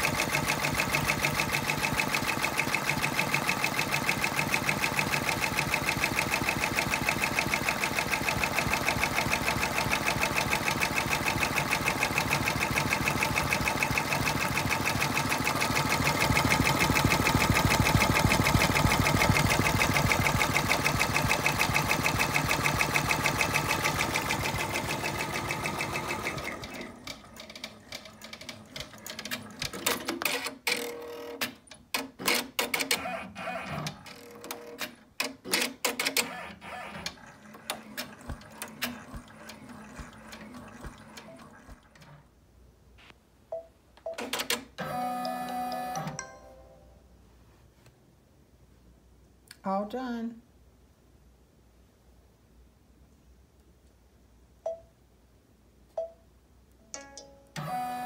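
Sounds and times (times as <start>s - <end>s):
embroidery machine needle chatter: 0.0s - 29.4s.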